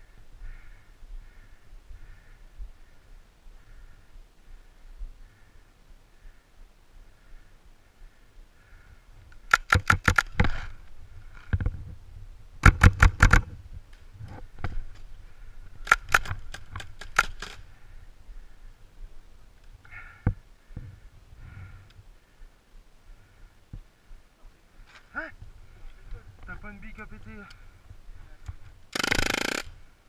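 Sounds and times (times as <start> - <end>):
paintball marker firing pops: 12.6 - 13.4.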